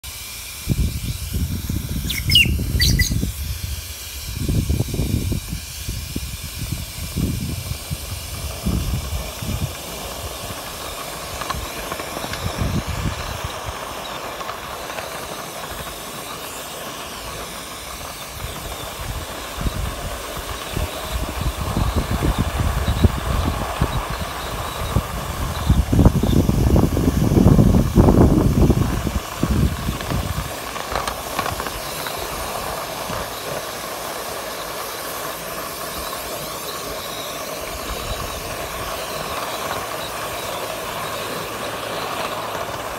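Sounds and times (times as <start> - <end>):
high rising squeals: 0.0 - 5.5
steam locomotive hiss and rumble: 0.0 - 42.9.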